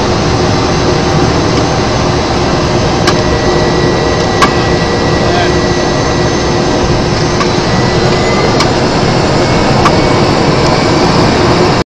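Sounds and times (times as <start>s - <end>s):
plane flying over: 0.0s - 11.8s.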